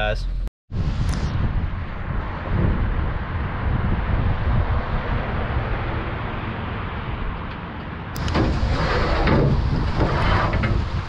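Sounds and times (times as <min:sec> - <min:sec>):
wind and rain on microphone: 0:00.7 - 0:11.0
loading ramp scraping: 0:08.2 - 0:11.0.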